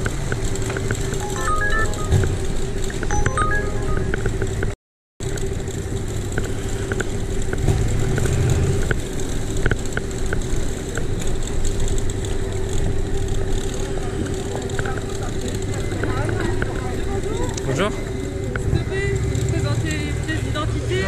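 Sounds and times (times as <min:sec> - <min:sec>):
bicycle rolling over cobblestones: 0:00.0 - 0:01.2, 0:05.2 - 0:20.2.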